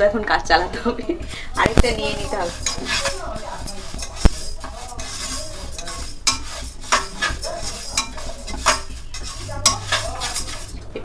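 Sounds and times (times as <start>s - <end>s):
grains rustling in a pan: 1.2s - 11.0s
spatula scraping a pan: 1.2s - 11.0s.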